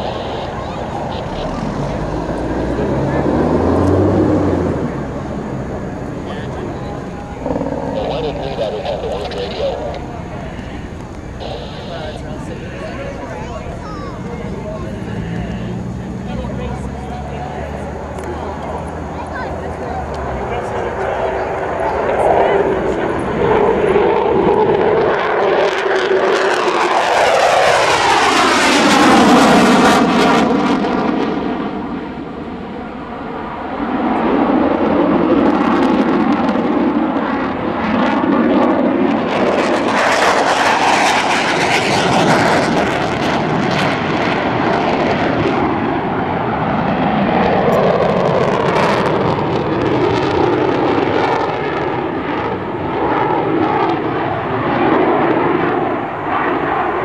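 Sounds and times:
fighter jet afterburner roar: 0.0s - 57.0s.

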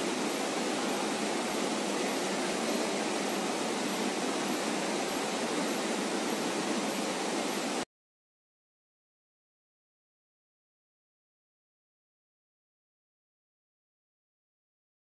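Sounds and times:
printing machine rushing noise: 0.0s - 7.8s.

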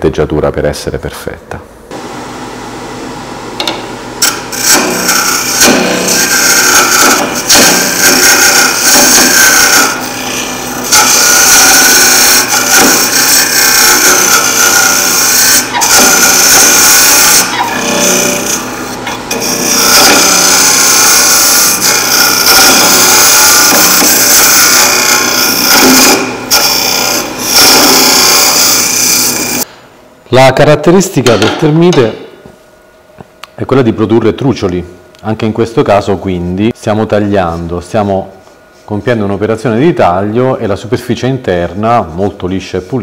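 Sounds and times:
lathe tool scraping wood: 4.2s - 29.7s.

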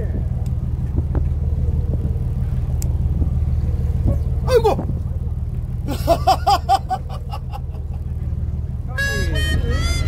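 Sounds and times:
low rumble: 0.0s - 10.0s
man laughing manically: 5.9s - 8.1s.

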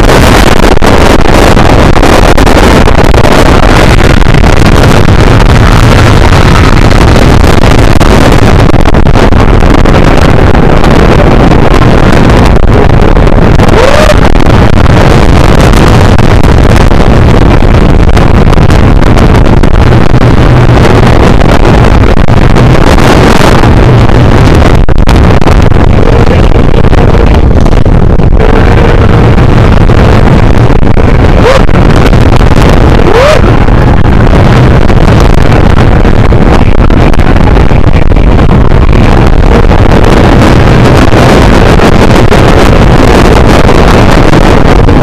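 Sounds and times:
wind blasting microphone: 0.0s - 45.0s.

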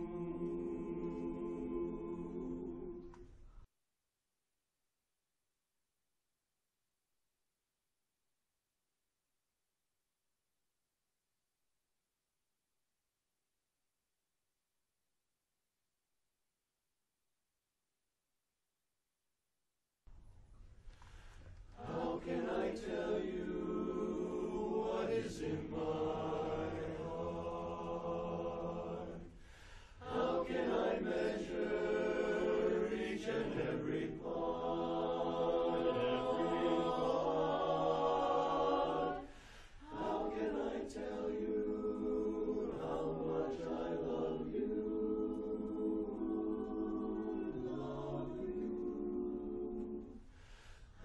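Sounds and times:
barbershop chorus singing a cappella: 0.0s - 3.3s, 21.8s - 50.2s.

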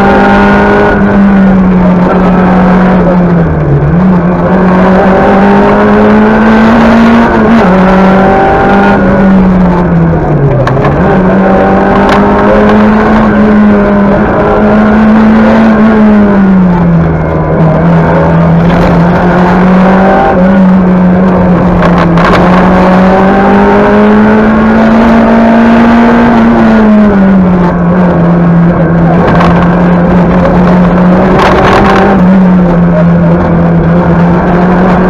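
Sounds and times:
car engine revving hard: 0.0s - 35.0s.

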